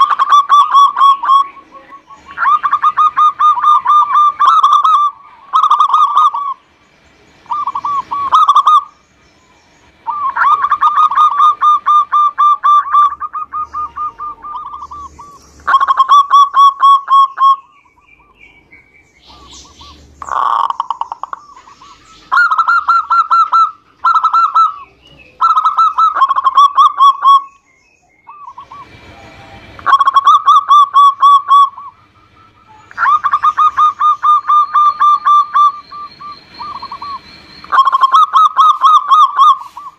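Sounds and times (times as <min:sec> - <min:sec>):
dove cooing: 0:00.0 - 0:06.7, 0:07.4 - 0:09.0, 0:10.0 - 0:18.5, 0:19.2 - 0:27.6, 0:28.2 - 0:39.9.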